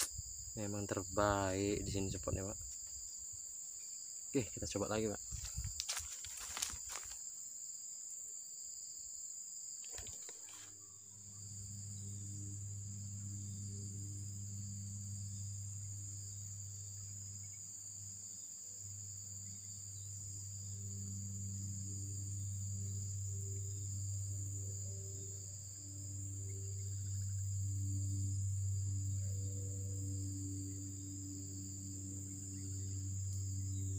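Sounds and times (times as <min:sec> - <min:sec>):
insects droning: 0:00.0 - 0:33.9
low steady hum: 0:10.6 - 0:33.9.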